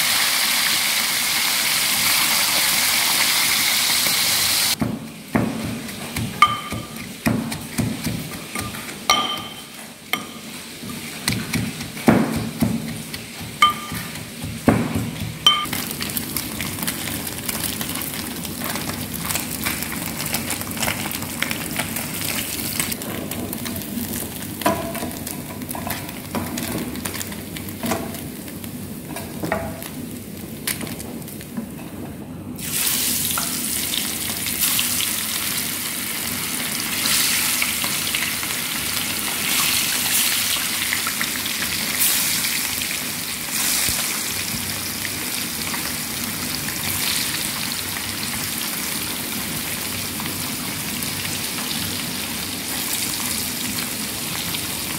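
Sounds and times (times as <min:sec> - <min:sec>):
fish sizzling in hot oil: 0:00.0 - 0:04.8, 0:32.6 - 0:54.9.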